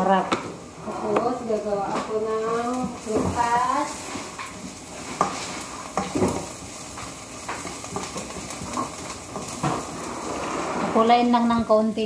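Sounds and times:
onion sizzling: 0:00.0 - 0:12.0
spatula scraping onion in wok: 0:01.8 - 0:11.4.

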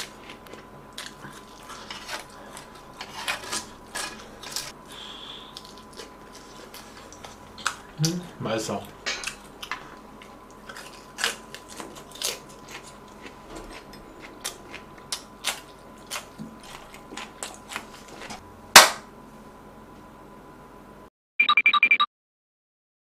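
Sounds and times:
loud sharp clap: 0:18.8 - 0:19.1.

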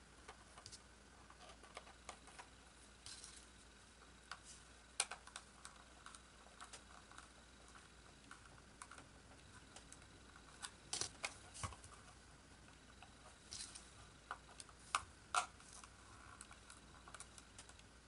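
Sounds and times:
small plastic clicks: 0:04.2 - 0:11.9, 0:13.0 - 0:17.9.

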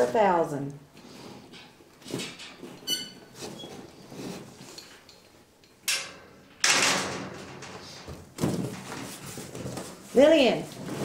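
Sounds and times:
short high squeak: 0:02.9 - 0:03.7.

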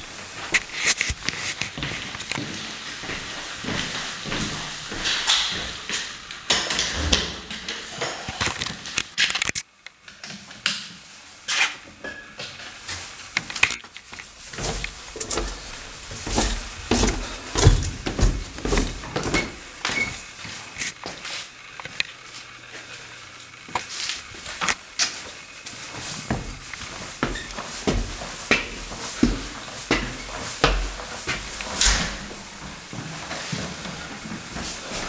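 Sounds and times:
footsteps on wooden floors: 0:00.0 - 0:08.9, 0:14.1 - 0:21.3, 0:23.7 - 0:35.0.

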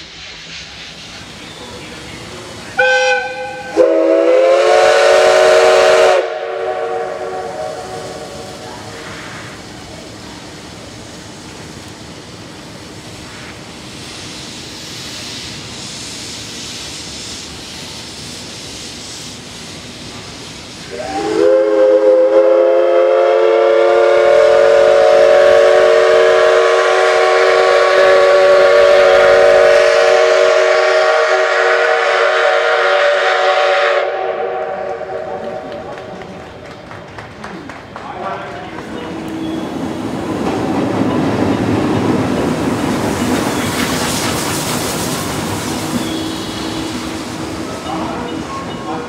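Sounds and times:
steam locomotive hissing: 0:00.0 - 0:49.0
steam whistle blast: 0:02.8 - 0:09.5, 0:20.8 - 0:35.9, 0:45.7 - 0:47.4.

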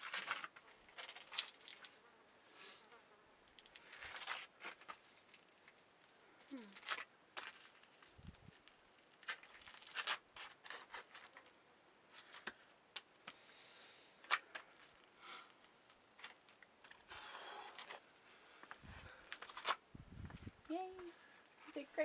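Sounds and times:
rustling scrape: 0:09.3 - 0:11.5.

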